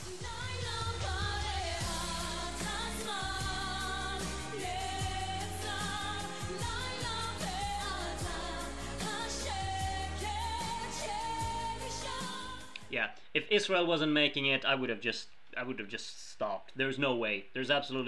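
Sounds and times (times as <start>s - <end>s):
woman singing pop song: 0.0s - 12.9s
drums: 0.0s - 13.1s.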